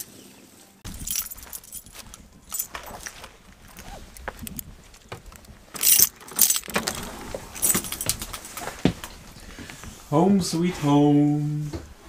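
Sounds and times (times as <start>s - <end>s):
keys jangling in a door lock: 0.9s - 2.8s, 5.8s - 7.0s, 7.6s - 8.6s.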